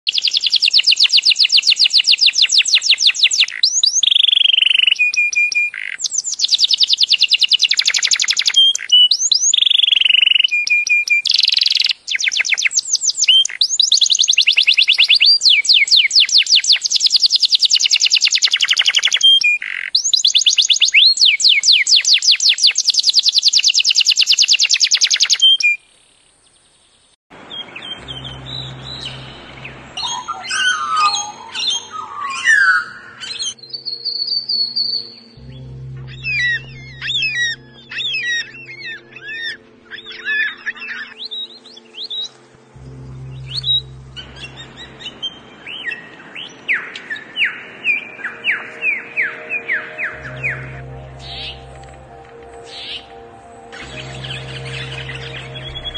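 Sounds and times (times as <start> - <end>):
canary singing trills: 0.0 - 26.6, 27.4 - 55.9
low hum: 27.3 - 32.0, 32.8 - 46.3, 49.0 - 55.9.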